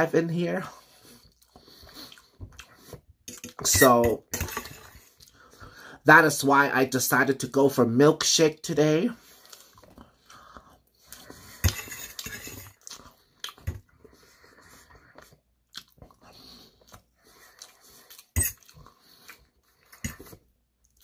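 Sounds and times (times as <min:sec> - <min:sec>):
chewing and mouth sounds: 0:00.9 - 0:03.7, 0:09.2 - 0:11.6, 0:12.8 - 0:21.0
metal spoon clinking on plate: 0:03.3 - 0:05.1.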